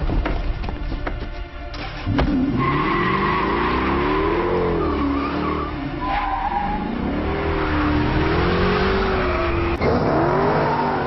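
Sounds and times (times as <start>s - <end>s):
car engine revving: 2.1s - 11.0s
tyres squealing: 2.4s - 11.0s.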